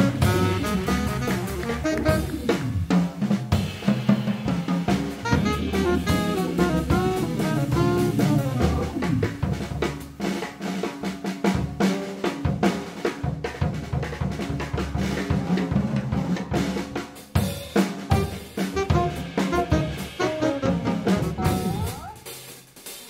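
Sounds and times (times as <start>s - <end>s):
tenor saxophone: 0.0s - 2.8s, 5.2s - 9.3s, 18.1s - 22.4s
jazz drum solo: 0.0s - 23.0s.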